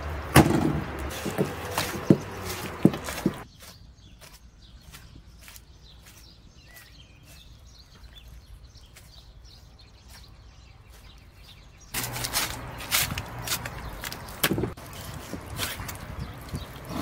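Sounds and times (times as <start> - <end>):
faint bird chirp: 1.2 - 12.0.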